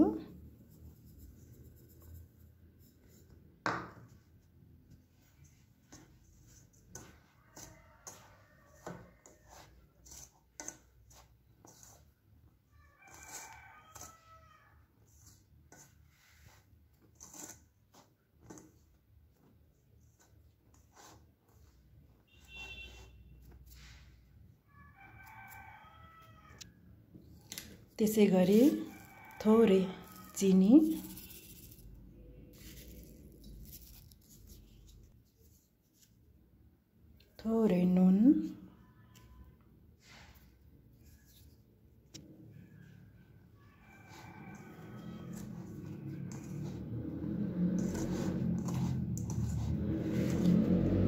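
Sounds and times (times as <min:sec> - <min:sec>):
hand mixing flour in bowl: 0:04.2 - 0:12.3, 0:12.9 - 0:24.2, 0:27.7 - 0:36.1, 0:43.8 - 0:51.0.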